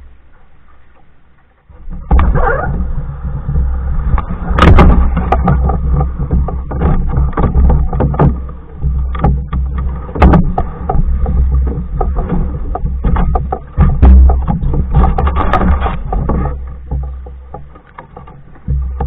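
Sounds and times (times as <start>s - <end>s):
low rumble: 0.0s - 19.0s
paddle knocks and clicks: 0.0s - 19.0s.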